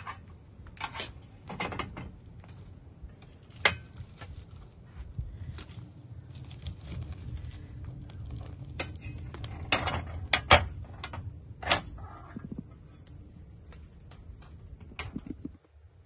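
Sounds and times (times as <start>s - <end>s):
low rumble: 4.0s - 16.0s.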